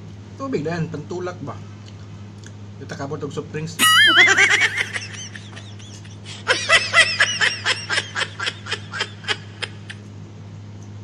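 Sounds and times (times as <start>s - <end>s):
steady low hum: 0.0s - 11.0s
high-pitched snickering laugh: 3.8s - 10.0s.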